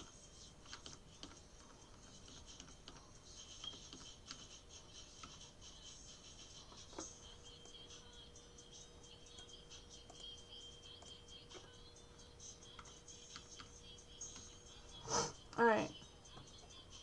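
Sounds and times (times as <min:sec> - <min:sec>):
computer keys and mouse clicks: 0:00.0 - 0:04.5.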